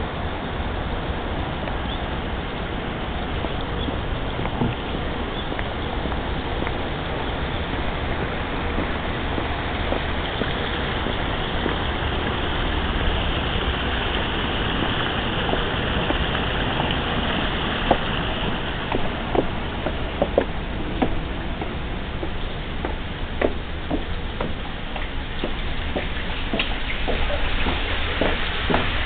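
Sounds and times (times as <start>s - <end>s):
waterfall rushing: 0.0s - 29.0s
sharp taps: 18.9s - 28.9s.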